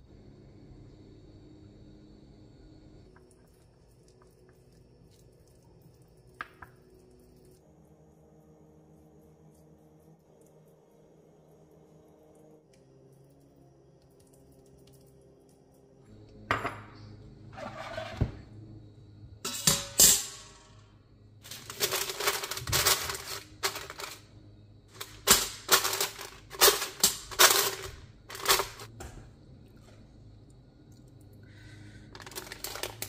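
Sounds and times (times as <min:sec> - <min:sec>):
parchment paper crinkling: 0:21.5 - 0:24.2.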